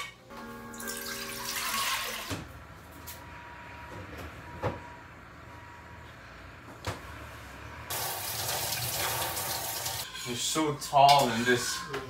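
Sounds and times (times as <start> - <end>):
tap water running: 0.7 - 2.4, 7.9 - 10.1.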